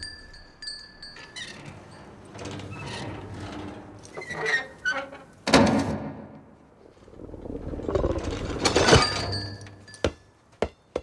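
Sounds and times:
metallic movement with squeaks: 0:01.1 - 0:05.4.

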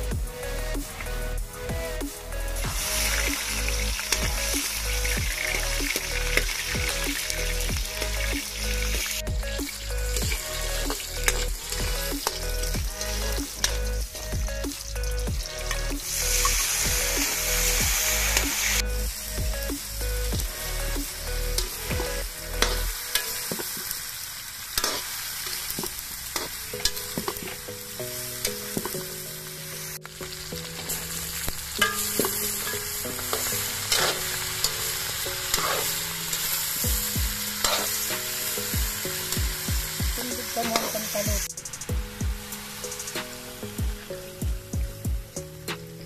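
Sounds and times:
food sizzling in a wok: 0:00.0 - 0:46.0
metal spatula scraping pan: 0:31.8 - 0:36.6, 0:37.6 - 0:38.2.

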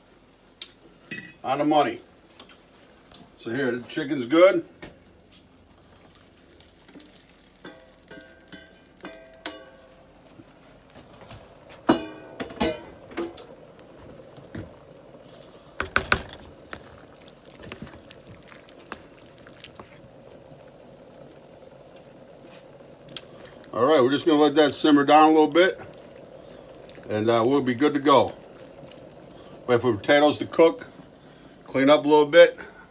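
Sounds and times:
skillet and spatula clanking: 0:07.6 - 0:09.9, 0:11.8 - 0:13.5.

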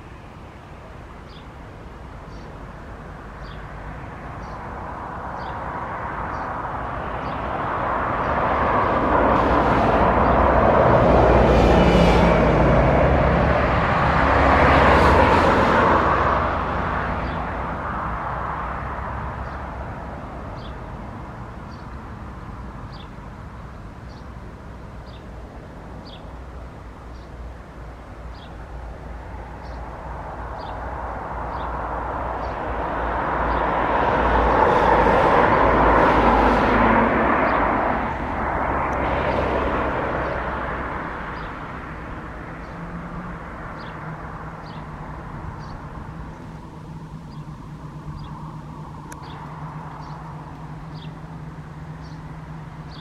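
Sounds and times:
jet engines at taxi power: 0:28.3 - 0:53.0.

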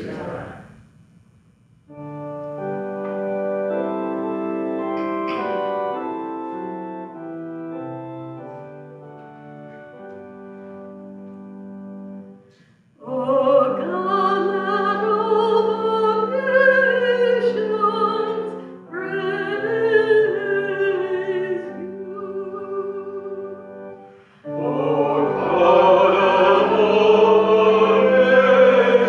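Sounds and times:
organ chords: 0:01.9 - 0:29.0
woman singing with vibrato: 0:13.0 - 0:23.6.

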